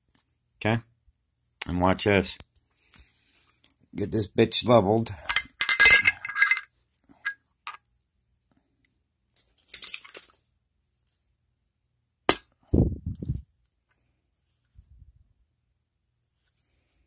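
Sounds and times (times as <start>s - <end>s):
metal clinking and rattling: 5.2s - 7.8s.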